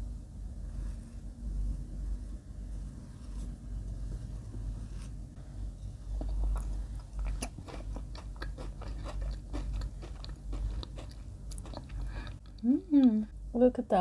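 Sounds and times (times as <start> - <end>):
close-up crunchy chewing: 6.1 - 12.7.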